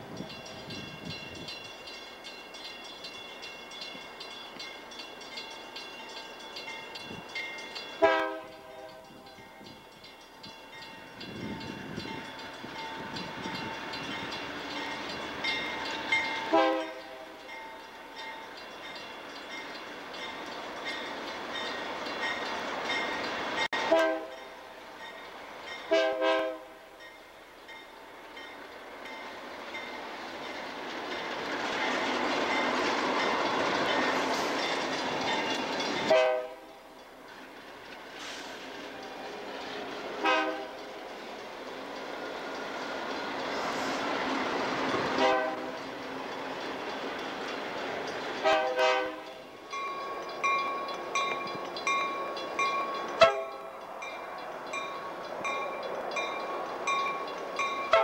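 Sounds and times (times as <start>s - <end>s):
train engines and wheels: 0.0s - 58.0s
train air horn blasts: 8.0s - 9.1s, 16.5s - 17.4s, 23.8s - 24.4s, 25.9s - 26.9s, 36.0s - 36.8s, 40.2s - 40.8s, 45.1s - 45.8s, 48.4s - 49.4s, 53.2s - 53.7s.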